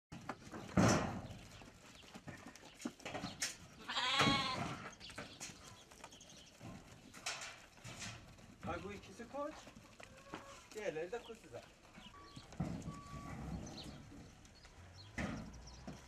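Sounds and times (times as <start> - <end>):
sheep or goat bleating: 3.8 - 4.8
shuffling: 4.9 - 15.0.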